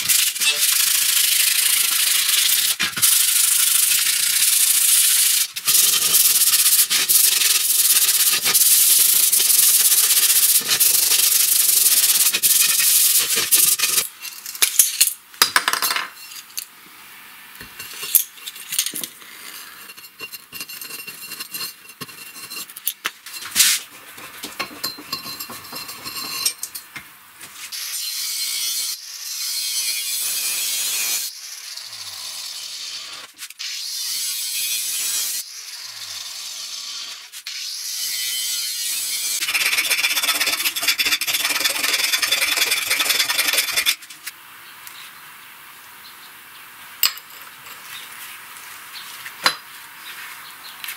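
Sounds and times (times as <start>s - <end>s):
angle grinder cutting steel pipe: 0.1s - 14.1s, 38.1s - 44.0s
tools scraping and clicking: 5.5s - 15.1s, 17.6s - 26.9s, 39.4s - 44.3s.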